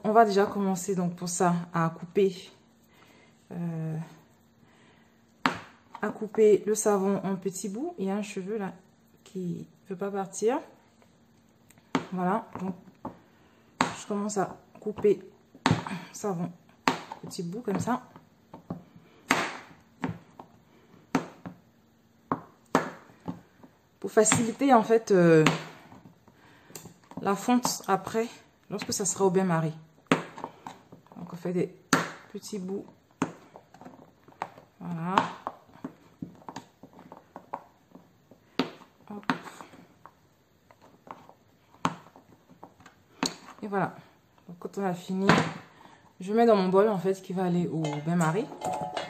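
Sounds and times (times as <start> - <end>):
knife chopping on plastic cutting board: 5.4 - 6.0, 16.8 - 20.5, 21.1 - 21.6, 22.3 - 23.5, 30.1 - 31.1, 31.9 - 32.3.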